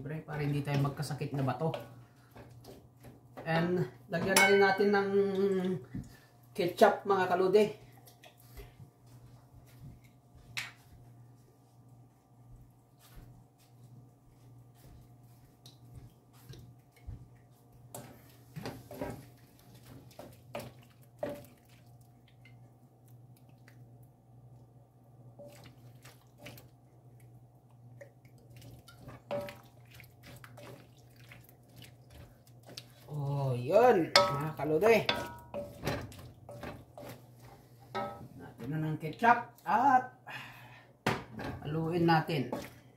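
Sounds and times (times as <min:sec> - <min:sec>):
spoon tapping and scraping wok: 0:34.1 - 0:37.2, 0:37.8 - 0:38.3.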